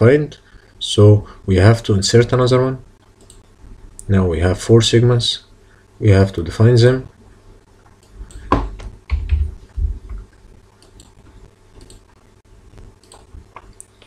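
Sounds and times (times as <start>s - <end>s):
keyboard and mouse clicking: 3.2s - 3.4s, 10.8s - 11.2s, 11.8s - 12.1s, 13.0s - 14.0s.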